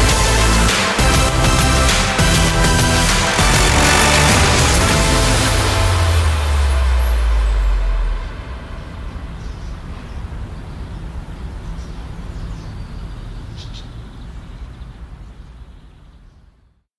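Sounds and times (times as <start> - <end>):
loud low sound: 2.5 - 10.5.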